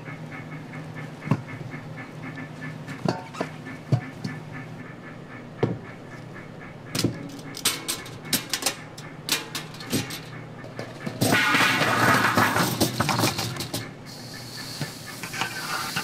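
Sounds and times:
kitchen hum: 0:05.6 - 0:16.0
metal steaming basket clinking: 0:07.0 - 0:14.0.

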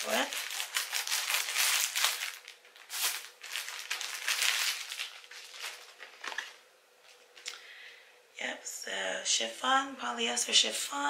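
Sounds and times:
packaging crinkling and rustling: 0:00.0 - 0:07.6.

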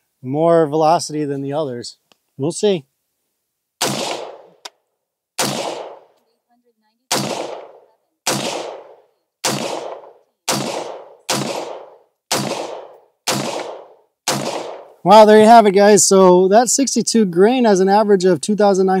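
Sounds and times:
rifle shots: 0:03.8 - 0:04.6, 0:05.4 - 0:06.2, 0:07.1 - 0:15.0.

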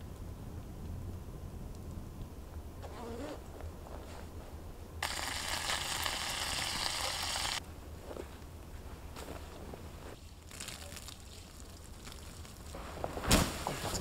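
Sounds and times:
meat sizzling in a frying pan: 0:05.0 - 0:07.6.

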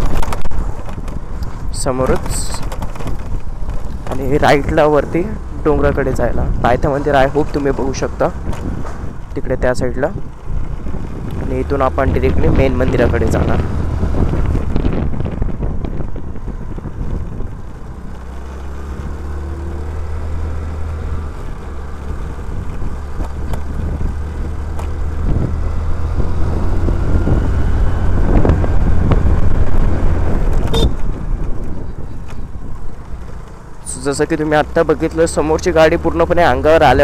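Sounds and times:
wind on microphone: 0:08.1 - 0:18.4, 0:20.6 - 0:33.4.

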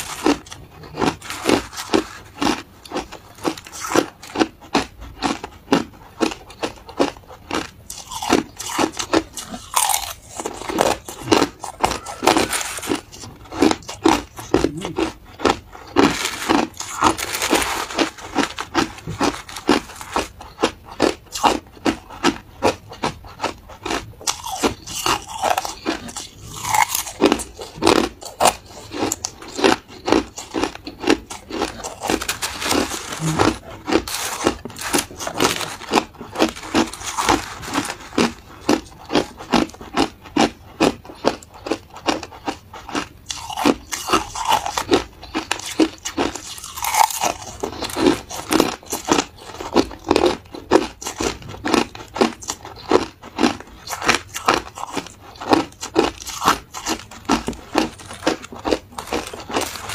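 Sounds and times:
crushed ice crunching: 0:07.9 - 0:21.5, 0:24.2 - 0:40.5, 0:51.7 - 0:59.9.

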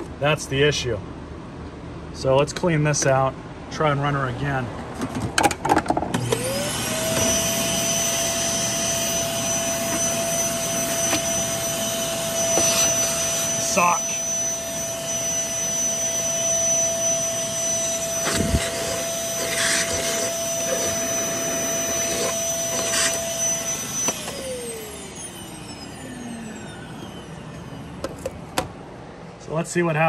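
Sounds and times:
vacuum cleaner motor whining: 0:06.1 - 0:29.1.

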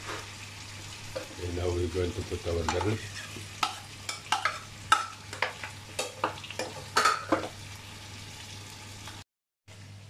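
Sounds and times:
faint sizzle: 0:00.0 - 0:10.0
metal spoon clinking on pan: 0:03.6 - 0:07.5.

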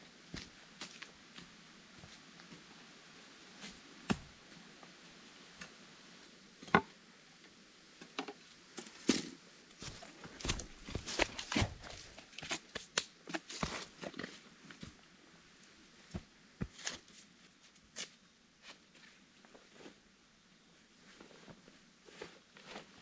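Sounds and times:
footsteps crunching on dry leaves: 0:09.8 - 0:12.2.

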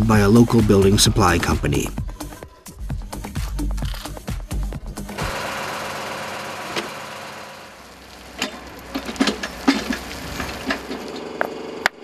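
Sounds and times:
excavator engine running: 0:03.8 - 0:12.0
dirt pouring: 0:05.3 - 0:11.4.

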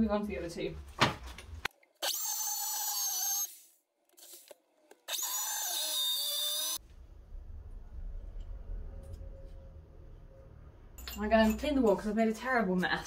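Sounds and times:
hammer drill boring into masonry: 0:02.0 - 0:04.5, 0:05.1 - 0:06.8.

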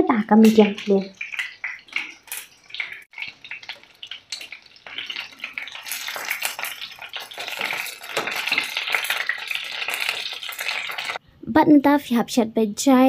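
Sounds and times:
chicken sizzling in hot oil: 0:00.2 - 0:11.2
tongs clicking and tapping: 0:00.4 - 0:09.4.

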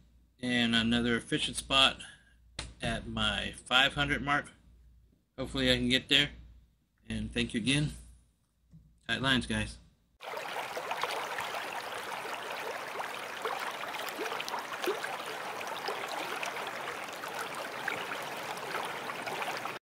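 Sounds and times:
running water gurgling: 0:10.2 - 0:19.8.

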